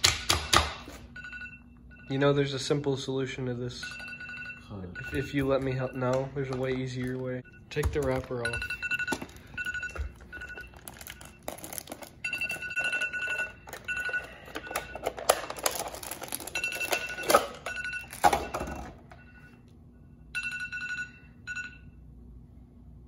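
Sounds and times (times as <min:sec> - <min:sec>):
phone alarm beeping: 0:01.1 - 0:02.7, 0:03.7 - 0:11.5, 0:12.2 - 0:15.2, 0:16.5 - 0:22.0.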